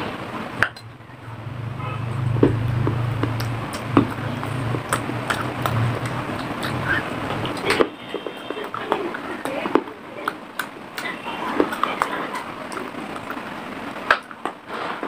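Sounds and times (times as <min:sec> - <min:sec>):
low steady hum: 0:00.0 - 0:14.1
crunching of clay being chewed: 0:02.8 - 0:13.4.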